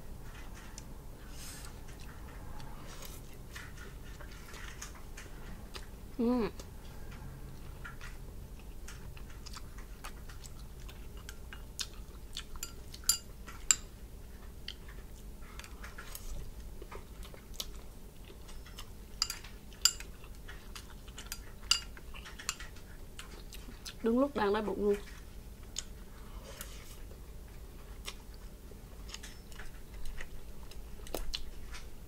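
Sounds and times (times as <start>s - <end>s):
wet chewing and mouth clicks: 7.6s - 24.0s, 25.0s - 31.9s.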